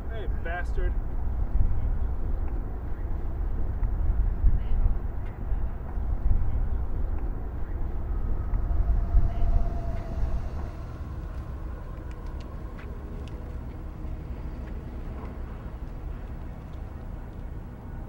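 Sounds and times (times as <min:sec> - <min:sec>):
low rumble: 0:00.9 - 0:18.0
faint clicks: 0:11.1 - 0:17.6.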